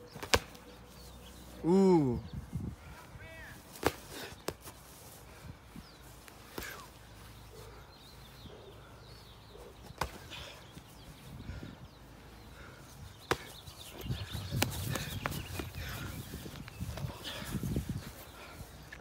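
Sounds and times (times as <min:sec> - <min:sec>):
boxing gloves slapping: 0:00.1 - 0:00.7, 0:03.7 - 0:04.8, 0:09.8 - 0:10.5, 0:13.2 - 0:15.9
faint bird chirps: 0:05.8 - 0:18.7.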